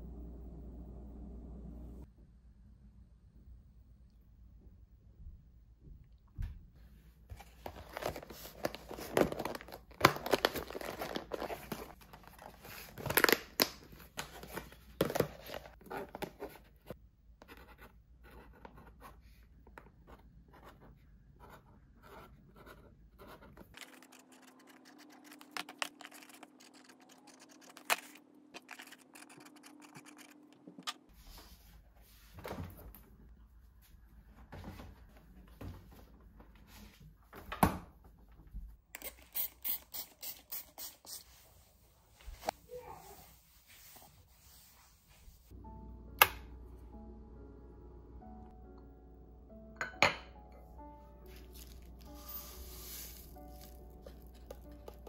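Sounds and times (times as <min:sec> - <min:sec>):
low hum: 0:00.0 - 0:06.1, 0:45.6 - 0:49.8.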